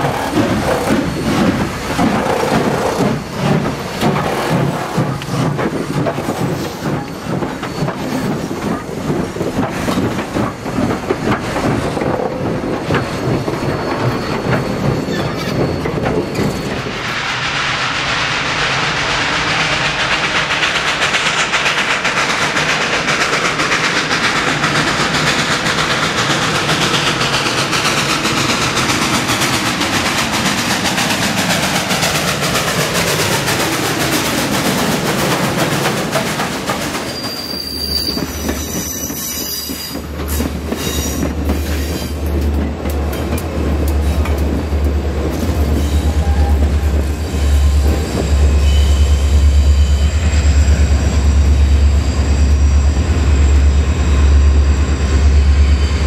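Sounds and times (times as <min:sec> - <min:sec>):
steam hissing: 0:00.0 - 0:42.3
train wheels clattering: 0:00.0 - 0:52.7.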